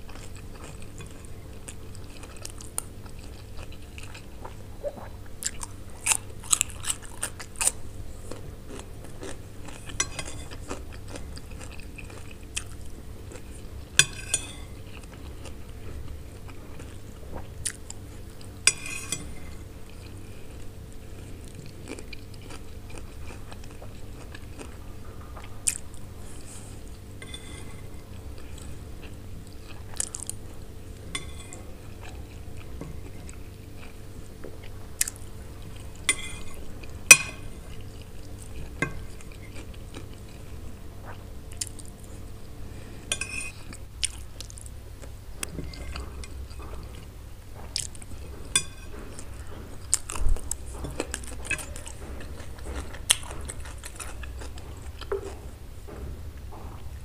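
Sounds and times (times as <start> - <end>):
crunchy bites and chewing: 5.4 - 13.6.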